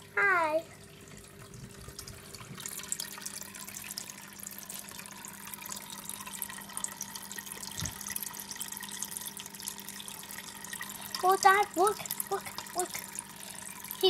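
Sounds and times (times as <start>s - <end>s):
faint steady hum: 0.0s - 14.0s
water pouring and splashing: 0.7s - 14.0s.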